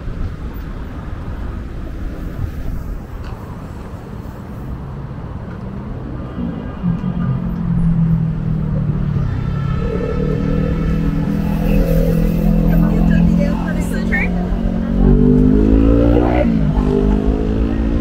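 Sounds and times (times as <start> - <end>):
road traffic rumble: 0.0 - 18.0
vehicle engine passing: 5.8 - 18.0.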